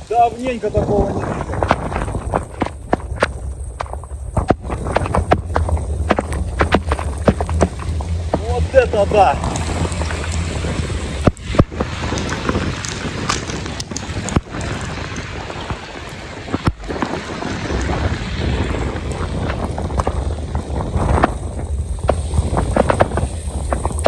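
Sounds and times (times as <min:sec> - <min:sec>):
heavy rain hissing: 0:00.0 - 0:24.0
tyres through water: 0:00.0 - 0:24.0
wind buffeting microphone: 0:00.0 - 0:24.0
sharp ticks and knocks: 0:01.5 - 0:08.9, 0:11.2 - 0:14.6.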